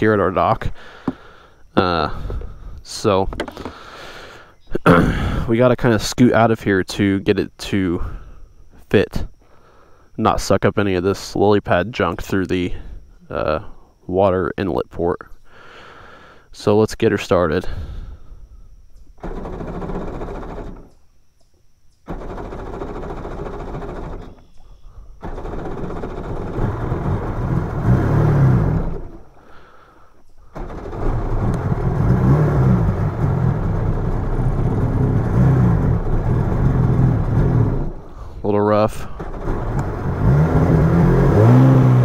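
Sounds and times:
two-stroke engine starting and revving: 19.2s - 20.9s, 22.1s - 24.5s, 25.2s - 29.7s, 30.5s - 38.4s, 39.0s - 42.0s.

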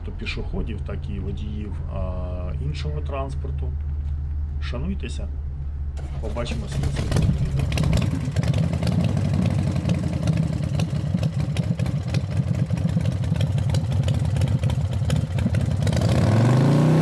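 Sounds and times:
smooth steady engine-like tone: 0.0s - 15.9s
motorcycle engine running: 6.0s - 17.0s.

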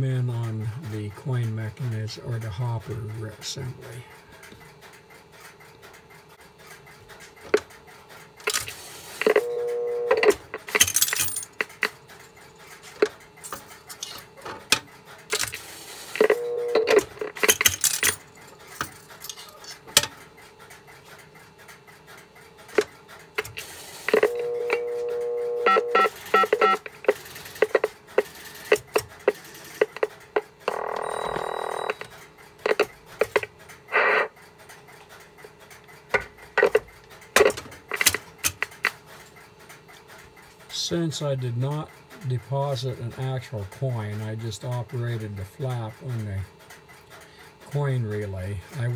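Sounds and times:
mechanical clicks and clunks: 0.0s - 48.9s
phone line tones: 9.2s - 10.6s, 16.2s - 17.4s, 24.1s - 28.0s, 28.7s - 34.4s
touch-tone beeps: 9.3s - 10.3s, 16.2s - 17.0s, 24.1s - 27.9s.

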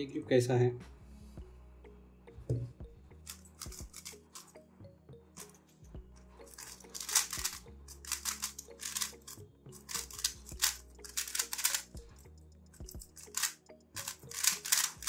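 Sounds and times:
puzzle cube clacking and swishing: 6.5s - 11.9s, 12.8s - 15.0s.

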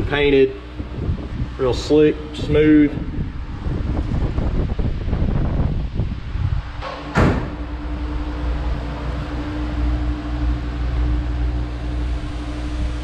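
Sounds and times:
low mechanical hum: 0.0s - 13.0s
sharp bang: 6.8s - 7.8s.

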